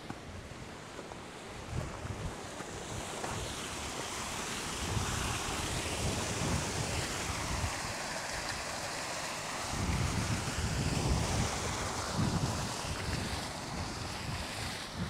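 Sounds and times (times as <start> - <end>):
river rushing over rocks: 2.4 - 10.4
wind buffeting microphone: 4.8 - 8.0, 9.7 - 15.0.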